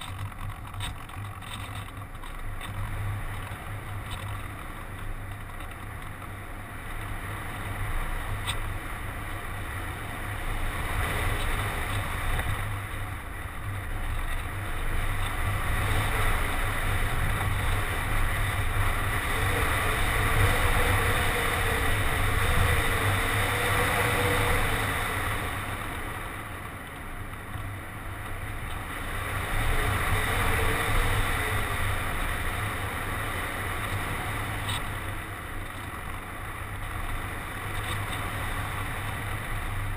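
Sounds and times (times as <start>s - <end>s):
wind buffeting: 10.4s - 26.4s.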